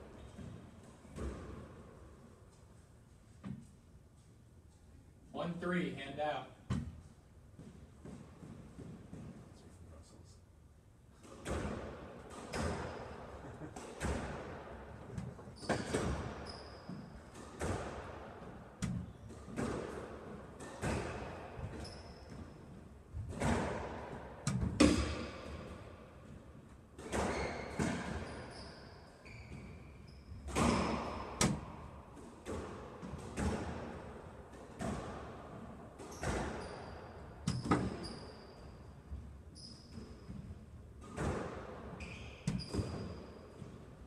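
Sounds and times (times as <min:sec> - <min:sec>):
squash ball hitting racquets and walls: 0:00.0 - 0:02.3, 0:06.6 - 0:09.4, 0:11.1 - 0:44.0
shoes squeaking on court floor: 0:15.1 - 0:17.8, 0:20.7 - 0:22.7, 0:27.1 - 0:31.3, 0:36.0 - 0:41.4, 0:42.0 - 0:43.9.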